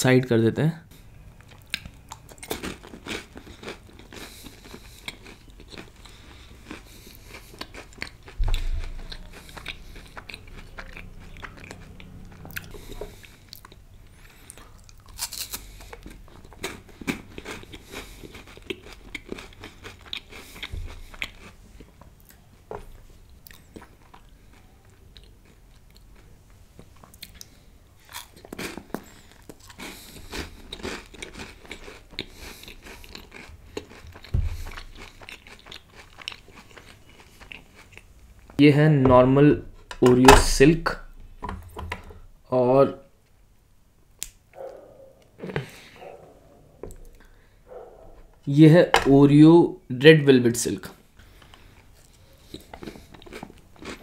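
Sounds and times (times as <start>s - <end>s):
chewing with crisp crunches: 1.3s - 38.6s, 44.2s - 49.2s, 50.9s - 54.0s
wet mouth sounds: 3.3s - 13.8s.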